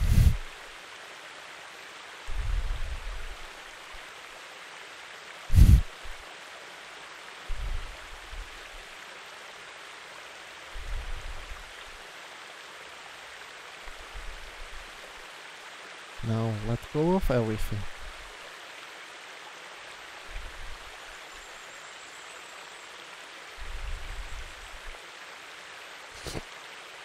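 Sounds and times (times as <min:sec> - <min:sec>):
rushing water: 0:00.0 - 0:27.0
muffled thumps on microphone: 0:05.5 - 0:05.9, 0:26.2 - 0:26.5.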